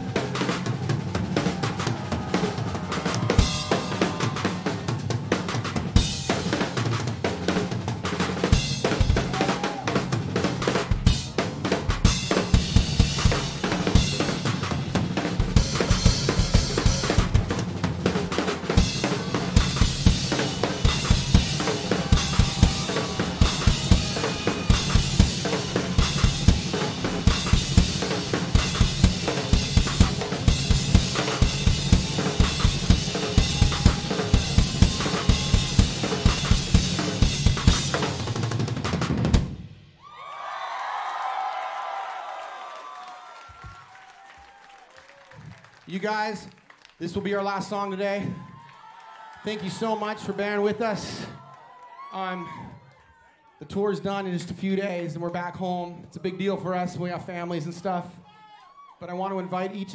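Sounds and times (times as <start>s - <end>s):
drum kit fast beat: 0.0s - 39.7s
rock band playing: 0.0s - 39.7s.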